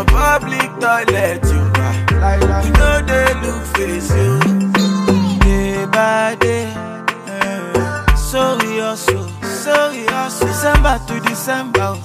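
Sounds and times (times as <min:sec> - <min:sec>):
afropop song with steady beat: 0:00.0 - 0:12.0.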